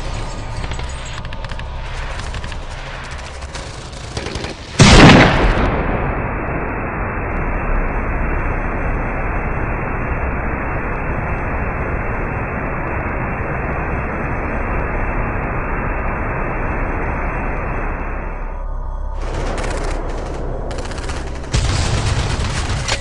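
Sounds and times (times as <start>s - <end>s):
steady dull rushing noise: 5.8s - 22.8s.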